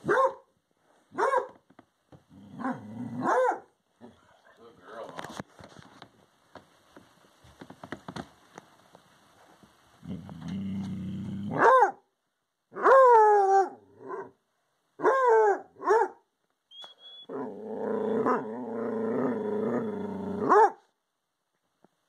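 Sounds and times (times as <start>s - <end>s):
dog growling low: 2.3s - 3.3s, 10.0s - 11.6s, 17.3s - 20.5s.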